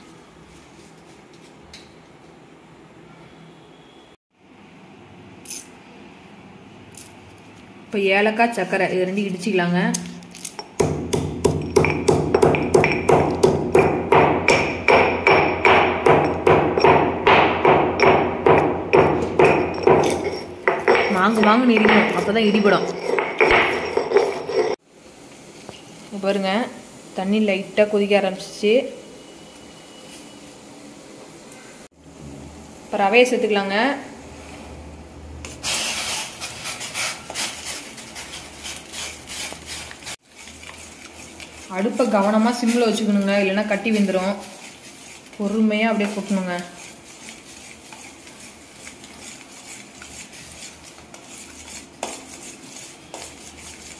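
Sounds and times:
stone pestle pounding in mortar: 10.6 - 24.8
spoon scraping metal pot: 19.0 - 24.8.

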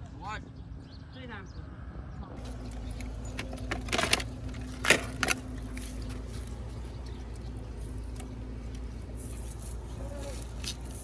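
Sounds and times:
plastic clattering and rattling: 2.5 - 5.8.

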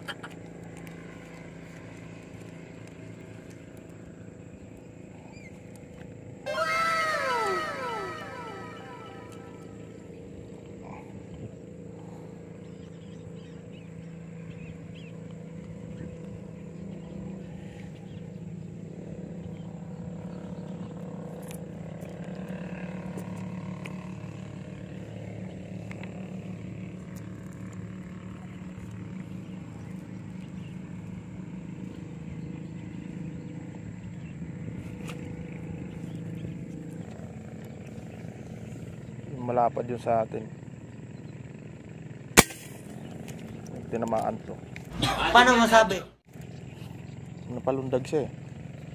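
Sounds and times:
engine drone: 0.0 - 39.3.

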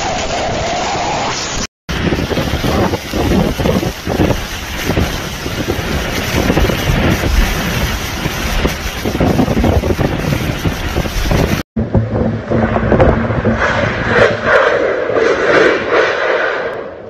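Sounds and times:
driving rain: 0.0 - 13.5
hurricane-force wind: 0.0 - 17.0
wind buffeting microphone: 1.9 - 17.0.

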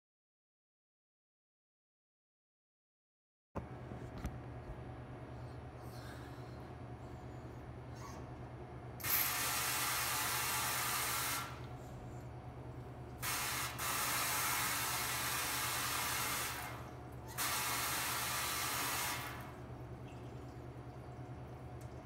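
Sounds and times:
water spray hissing into sink: 9.0 - 11.6, 13.2 - 19.5.

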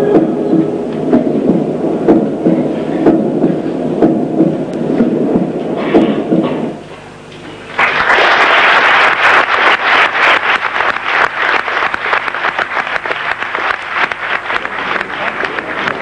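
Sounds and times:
audience applause: 7.7 - 16.0.

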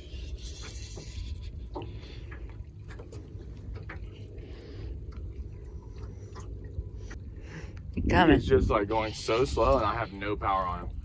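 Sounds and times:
low wind rumble: 0.0 - 11.0
water lapping against hull: 0.0 - 11.0.

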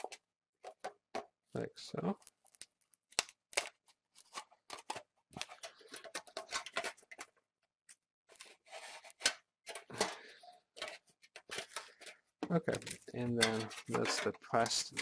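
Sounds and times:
metal and plastic peeling off: 9.1 - 15.0.

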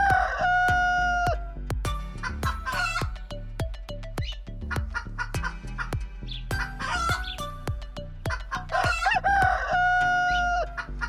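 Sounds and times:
rooster crowing: 0.0 - 1.5, 6.6 - 7.4, 8.5 - 10.8
background music with steady beat: 0.0 - 11.0.

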